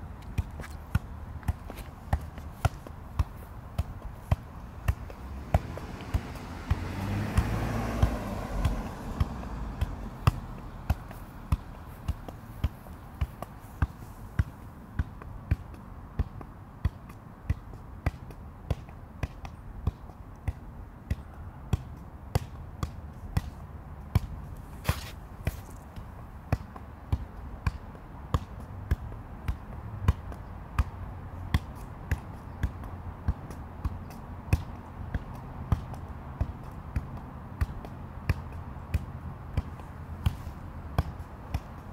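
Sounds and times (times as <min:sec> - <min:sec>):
foot tapping soccer ball: 0:00.0 - 0:41.9
car passing: 0:04.7 - 0:12.2.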